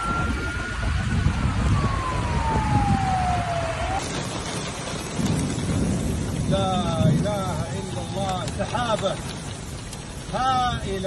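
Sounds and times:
siren winding down: 0.0 - 4.0
heavy rain: 0.0 - 11.0
storm rumble: 0.0 - 11.0.

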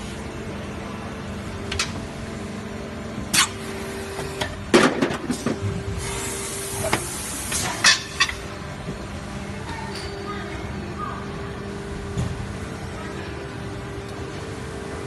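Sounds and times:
clanks and knocks of machine: 4.3 - 5.6.

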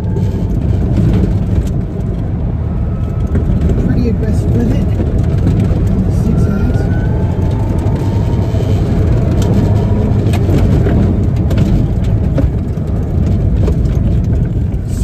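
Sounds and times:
low rumble: 0.0 - 15.0
wind and tyre noise: 0.0 - 15.0.

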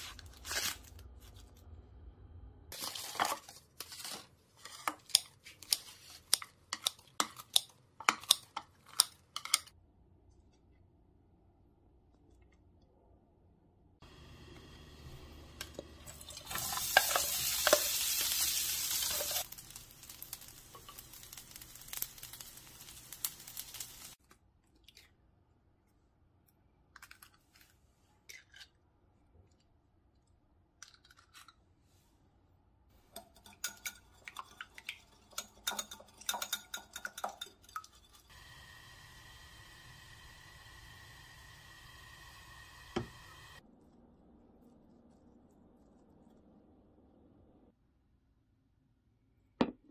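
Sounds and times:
food sizzling in a frying pan: 16.0 - 24.2, 38.3 - 43.6
utensil clicking against a pan: 33.2 - 38.1
eggs beaten in a ceramic bowl: 33.2 - 38.3.

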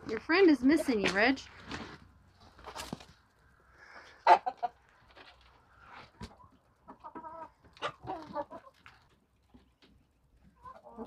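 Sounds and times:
hens clucking: 2.4 - 11.0.

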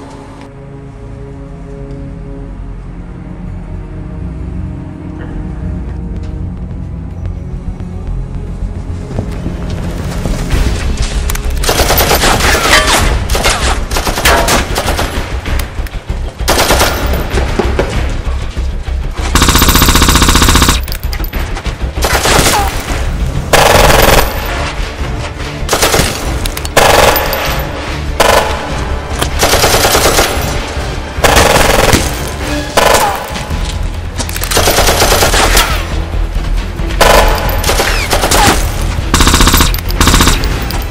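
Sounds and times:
background music: 0.0 - 40.9
automatic rifle fire: 19.4 - 20.9, 39.2 - 40.6.

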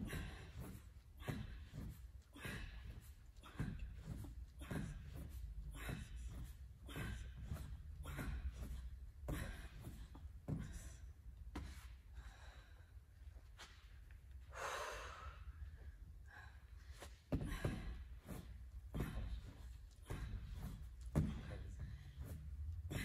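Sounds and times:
person gasping breathing: 14.5 - 15.6.

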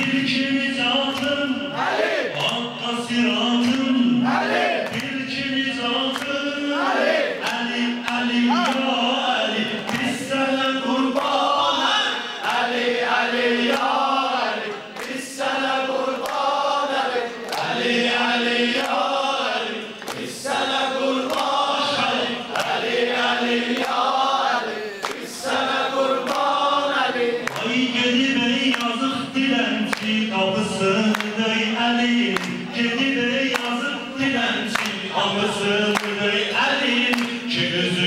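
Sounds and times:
men singing a chant: 0.0 - 38.0
slow hand claps: 4.8 - 5.2, 6.0 - 6.4, 7.4 - 8.9, 9.8 - 10.2, 13.6 - 14.0, 15.0 - 15.2, 16.2 - 16.5, 17.4 - 17.8, 20.0 - 20.3, 21.2 - 21.6, 22.5 - 22.8, 23.7 - 24.1, 26.2 - 26.5, 27.4 - 27.8, 28.6 - 29.0, 29.9 - 30.2, 31.1 - 31.4, 32.3 - 32.6, 33.5 - 33.8, 34.7 - 35.0, 35.9 - 36.2, 37.1 - 37.4.

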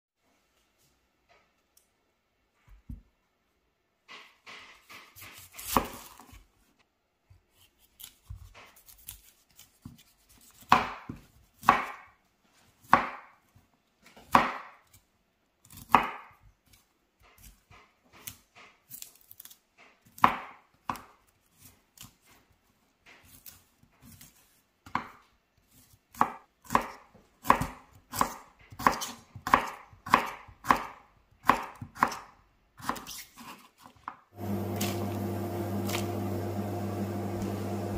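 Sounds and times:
knife cutting on cutting board: 4.7 - 6.4, 7.5 - 12.0, 25.7 - 34.0, 34.8 - 36.2.

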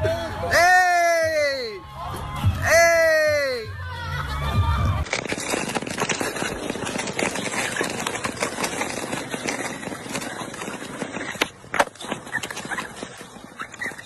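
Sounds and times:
skateboard wheels rolling on ice: 4.3 - 14.0
skateboard tail striking ice: 5.0 - 14.0.

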